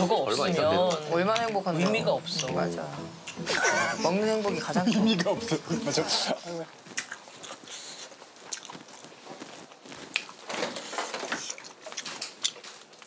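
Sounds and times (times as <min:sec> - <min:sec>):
soft footsteps: 0:06.7 - 0:10.8.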